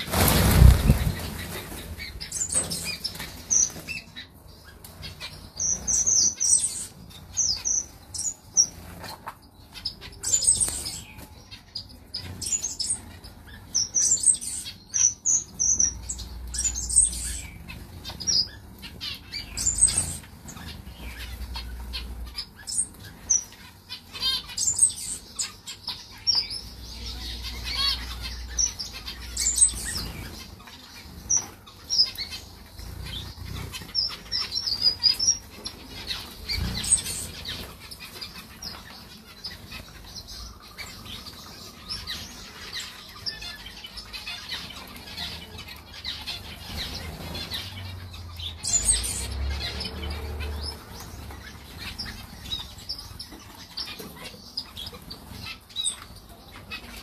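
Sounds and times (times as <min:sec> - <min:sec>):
wings fluttering: 0:00.0 - 0:04.2
finches chirping: 0:00.0 - 0:57.0.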